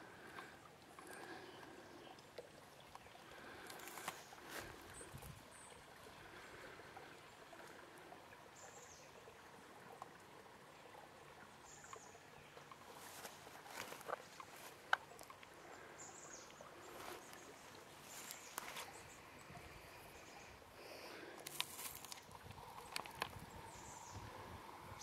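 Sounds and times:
soft steady hiss: 0:00.0 - 0:25.0
soft crackles and rustles: 0:02.4 - 0:05.5, 0:12.8 - 0:15.6, 0:16.4 - 0:19.4, 0:21.2 - 0:23.7.

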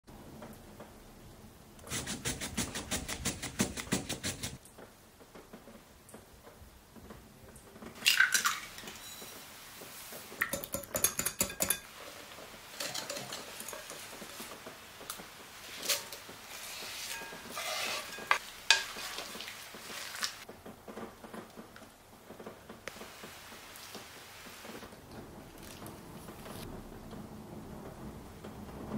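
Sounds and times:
utensils clinking against glass bowl: 0:10.4 - 0:11.9, 0:12.8 - 0:14.1, 0:17.0 - 0:19.1
whisk stirring batter: 0:15.7 - 0:20.4.

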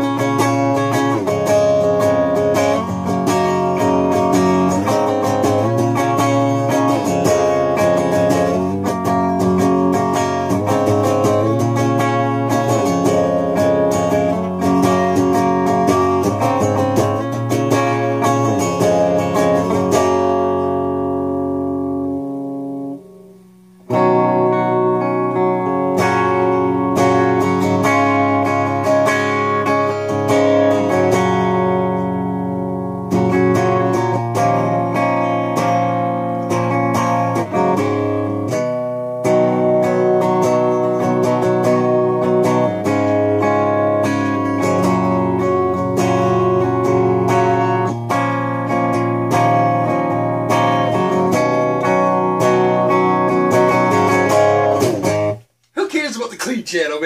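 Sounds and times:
electric guitar strummed chords: 0:00.0 - 0:56.9.

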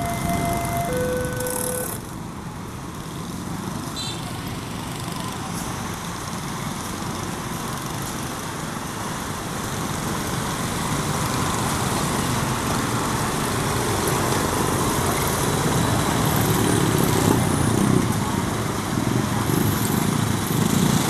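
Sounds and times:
diesel locomotive engine: 0:00.0 - 0:03.8.

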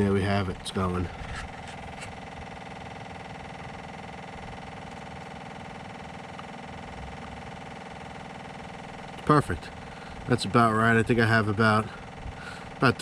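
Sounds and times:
diesel generator humming: 0:00.0 - 0:13.0.

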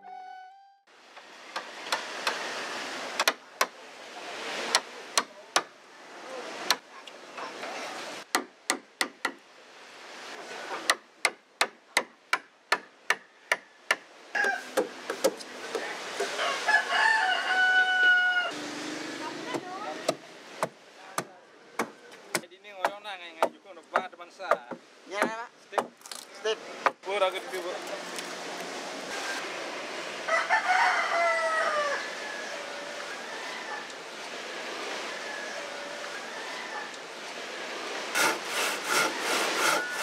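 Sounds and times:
rooster crowing: 0:14.3 - 0:14.8, 0:16.4 - 0:18.6, 0:30.2 - 0:33.8
hand tool striking hardwood: 0:19.5 - 0:26.0.

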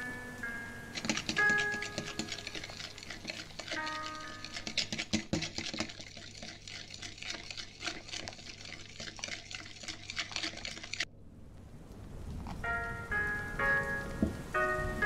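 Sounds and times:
beater stirring batter in glass bowl: 0:00.9 - 0:11.1.

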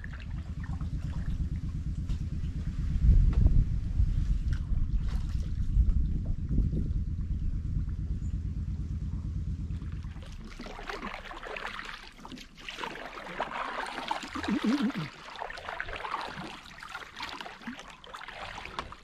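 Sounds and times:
kayak paddle splashing water: 0:09.9 - 0:19.0
water trickling off paddle: 0:09.9 - 0:19.0.

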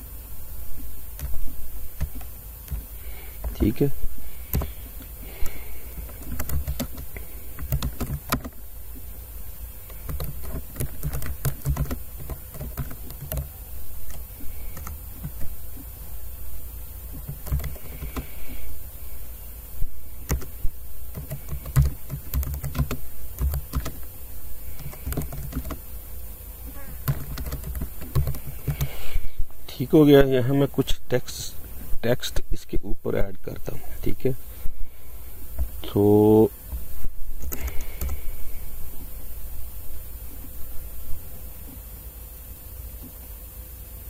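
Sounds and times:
steady high hiss: 0:00.0 - 0:44.0
typing on computer keyboard: 0:06.1 - 0:08.6, 0:09.8 - 0:13.5, 0:17.2 - 0:18.3, 0:20.2 - 0:20.5, 0:21.1 - 0:24.1, 0:24.7 - 0:25.8, 0:27.0 - 0:28.9.

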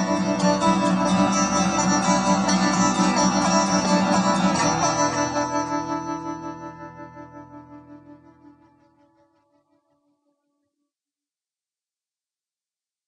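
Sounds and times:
guitar strumming: 0:00.0 - 0:09.6.

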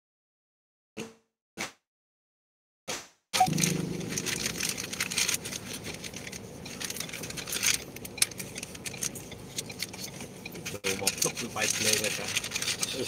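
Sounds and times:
steady low street hum: 0:03.4 - 0:13.0.

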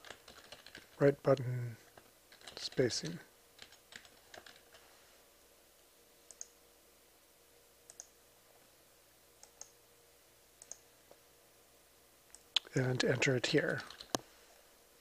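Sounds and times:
mouse clicks: 0:06.3 - 0:06.6, 0:07.9 - 0:08.2, 0:09.4 - 0:09.8, 0:10.6 - 0:10.8
keyboard keystrokes: 0:13.8 - 0:14.2.

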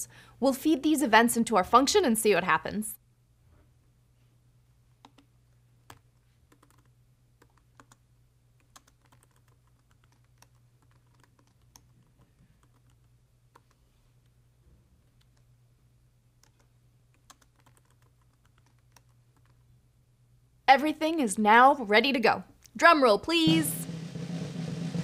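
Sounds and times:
typing on computer keyboard: 0:05.0 - 0:08.0, 0:08.6 - 0:13.8, 0:16.4 - 0:19.6.

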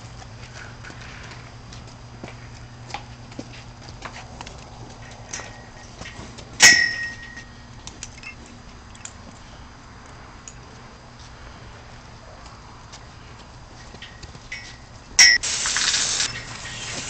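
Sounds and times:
sharp metallic clang: 0:06.6 - 0:07.5, 0:14.1 - 0:15.6.

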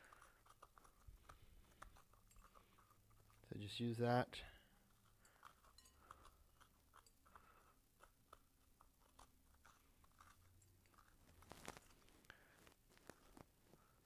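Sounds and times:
knife scraping squash: 0:00.0 - 0:03.6, 0:04.7 - 0:12.1.

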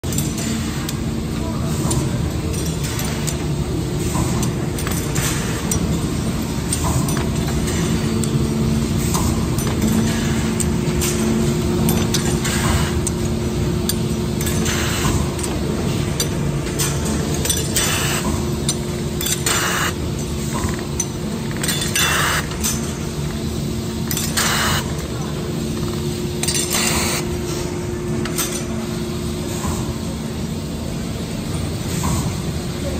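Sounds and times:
metal shells clinking: 0:15.4 - 0:18.0, 0:18.6 - 0:23.0.

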